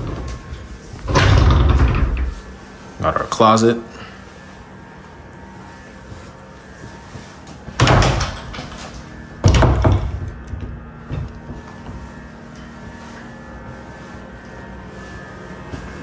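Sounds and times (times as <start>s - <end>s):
closet doors knocking shut: 1.1s - 2.3s, 7.8s - 8.7s, 9.4s - 11.3s.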